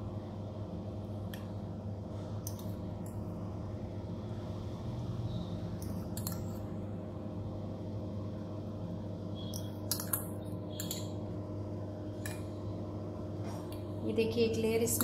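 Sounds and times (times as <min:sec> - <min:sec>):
steady low hum: 0:00.0 - 0:15.0
glass and spoon clicking and scraping: 0:05.8 - 0:06.6, 0:09.5 - 0:11.2.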